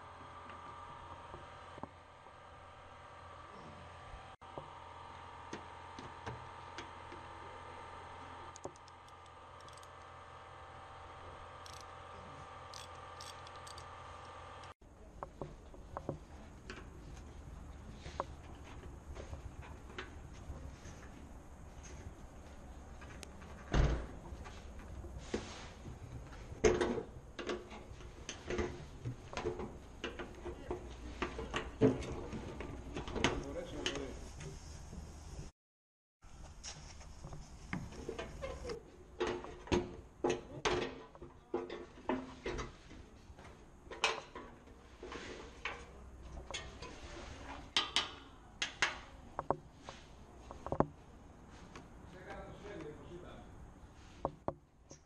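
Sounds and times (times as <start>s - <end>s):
low workshop hum: 0.0s - 35.5s, 36.2s - 55.0s
ratchet clicking: 8.5s - 10.0s, 11.6s - 11.9s, 12.7s - 14.7s.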